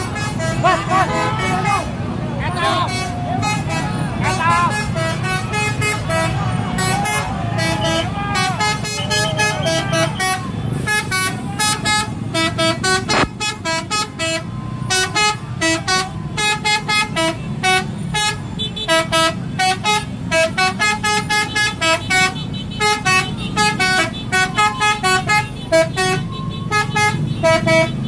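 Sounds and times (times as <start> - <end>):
crowd voices: 0.0 - 13.4
multi-tone vehicle horn toots: 0.0 - 28.0.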